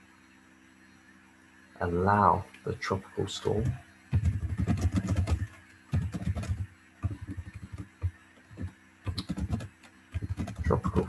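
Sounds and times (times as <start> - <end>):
typing on computer keyboard: 3.6 - 11.0.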